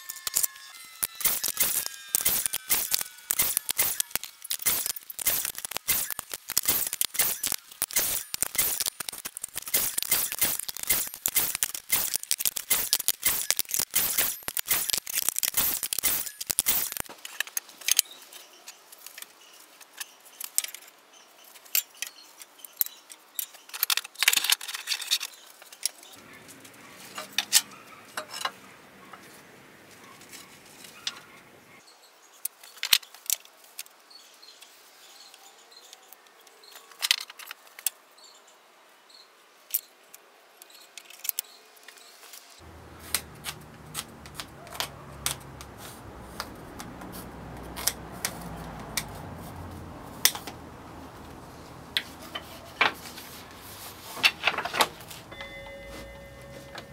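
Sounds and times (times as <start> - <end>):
wood pieces clattering: 0.2 - 17.5, 54.0 - 55.3.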